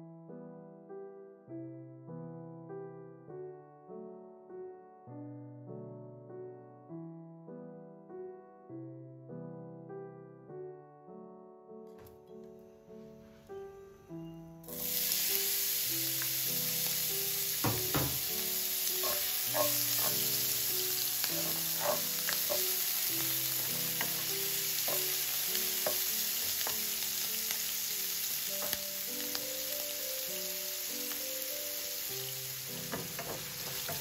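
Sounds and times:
soft piano music: 0.0 - 34.0
meat sizzling in a frying pan: 14.7 - 34.0
utensil clicking against pan: 19.0 - 20.4.

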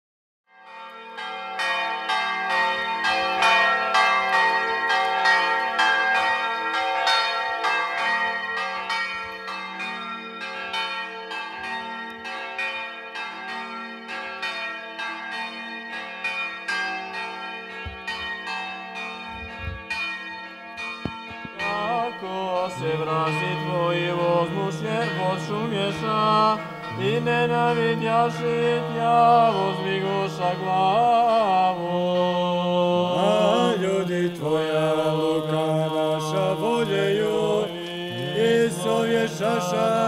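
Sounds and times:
church bells ringing: 0.5 - 40.0.

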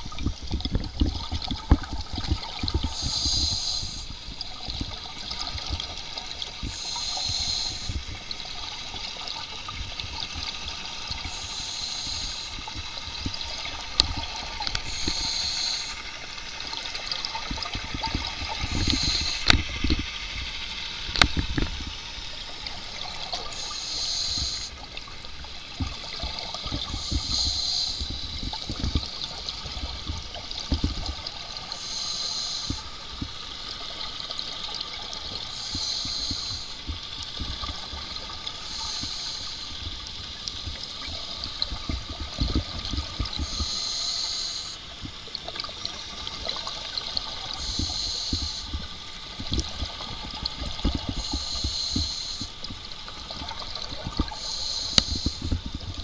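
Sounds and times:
exhaled bubbles underwater: 0.0 - 56.0
regulator inhalation hiss: 2.8 - 4.2, 5.9 - 9.2, 10.4 - 13.6, 14.2 - 17.1, 18.3 - 22.2, 22.8 - 25.0, 26.2 - 28.5, 31.6 - 33.5, 35.3 - 37.4, 38.4 - 41.0, 43.2 - 45.2, 47.3 - 49.2, 51.0 - 52.7, 54.0 - 55.7.

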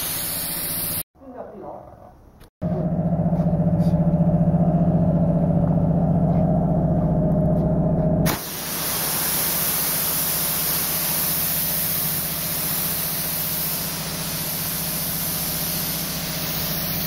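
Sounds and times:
pressurised gas hissing: 0.0 - 1.0, 8.3 - 17.0.

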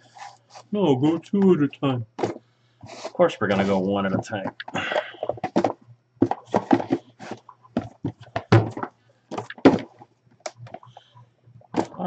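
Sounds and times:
cardboard boxes knocking on table: 5.4 - 10.0.

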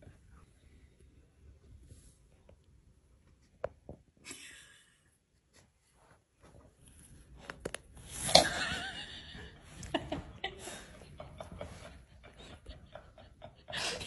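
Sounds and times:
soft rustle: 5.3 - 8.2.

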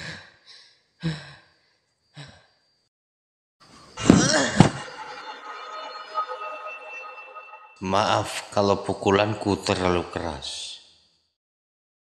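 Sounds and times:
high ringing tone: 4.0 - 10.2
horror jump-scare sting: 4.0 - 10.2.

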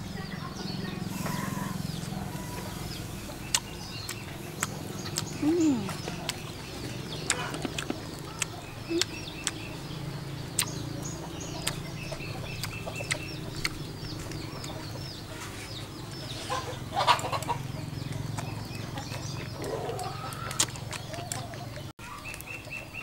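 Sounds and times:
small birds chirping: 0.0 - 23.0
chickens clucking: 0.3 - 23.0.

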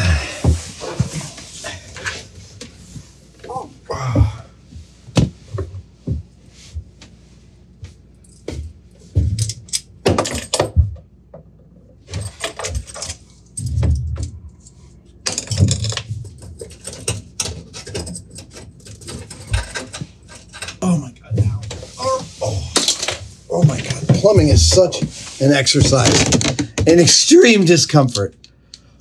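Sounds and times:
metal fittings clinking and rattling: 15.2 - 20.8.

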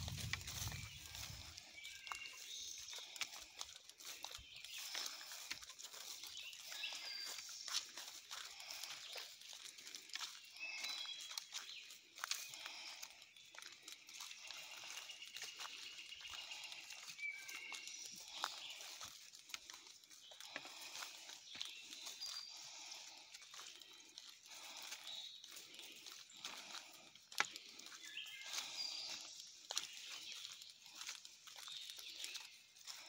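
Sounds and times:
footsteps through leafy undergrowth: 0.0 - 33.0.

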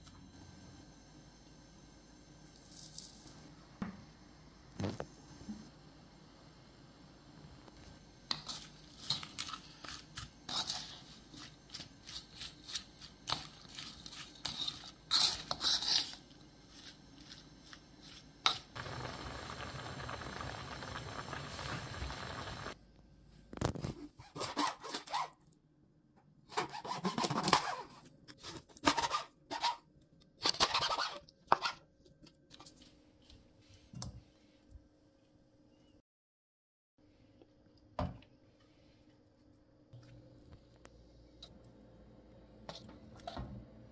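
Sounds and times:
wooden spoon scraping a bowl: 10.5 - 17.3
pot boiling and bubbling: 18.5 - 22.8.

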